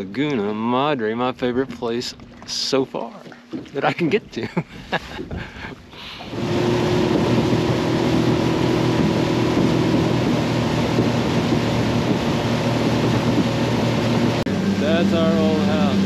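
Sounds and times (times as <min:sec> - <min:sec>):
motorboat engine drone: 0:00.0 - 0:16.0
wind noise: 0:04.2 - 0:14.6
rushing water: 0:05.6 - 0:16.0.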